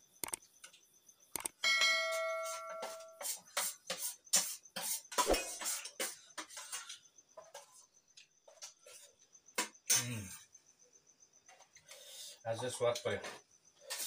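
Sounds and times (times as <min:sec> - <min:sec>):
metal spoons scraping steel plates: 0:02.1 - 0:03.7.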